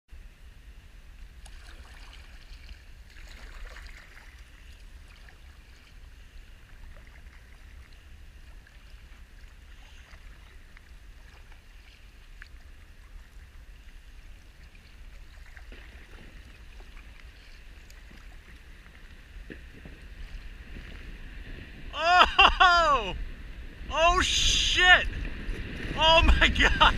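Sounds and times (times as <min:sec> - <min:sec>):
water lapping and trickling: 0:00.9 - 0:22.0
soft splashes: 0:01.4 - 0:21.3.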